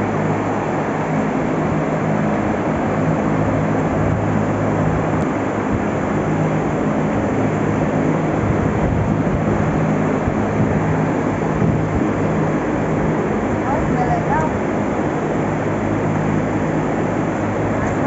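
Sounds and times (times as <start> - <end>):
low motor hum: 0.0 - 18.0
ventilation fans droning: 0.0 - 18.0.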